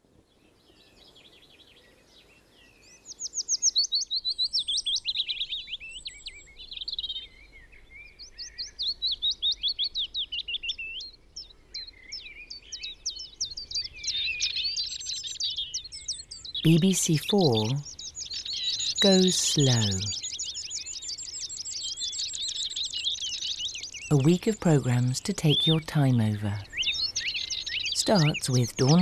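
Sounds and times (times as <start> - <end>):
songbirds singing trills: 0.3 - 29.0.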